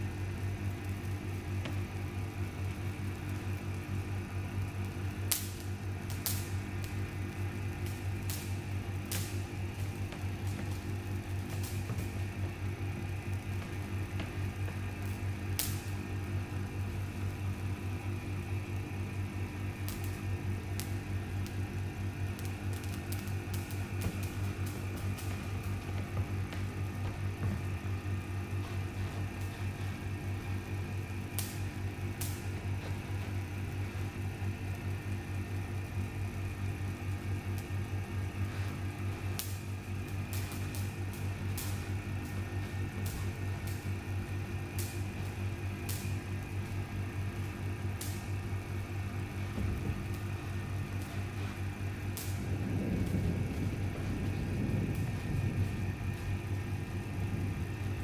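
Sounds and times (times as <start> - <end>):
generator motor humming: 0.0 - 58.0.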